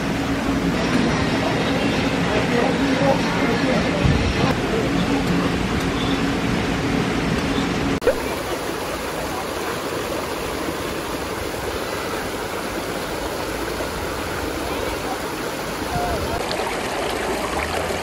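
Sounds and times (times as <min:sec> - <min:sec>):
stream rushing over rocks: 0:08.0 - 0:18.0.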